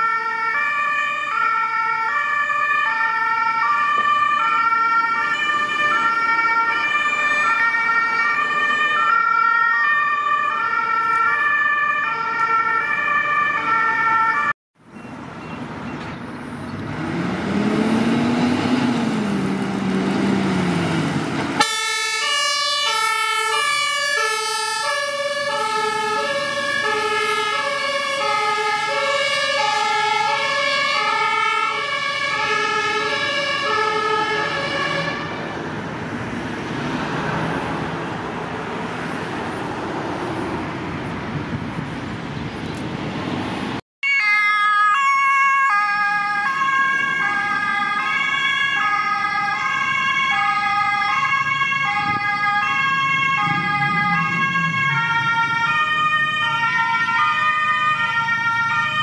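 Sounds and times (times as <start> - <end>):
two-tone siren: 0.0 - 14.6, 21.6 - 35.5, 44.0 - 59.0
large vehicle passing: 15.2 - 21.6, 22.3 - 43.8, 46.2 - 59.0.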